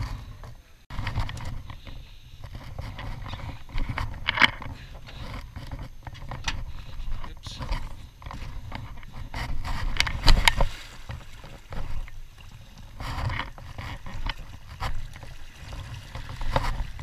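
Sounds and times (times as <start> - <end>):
water sloshing against hull: 0.0 - 17.0.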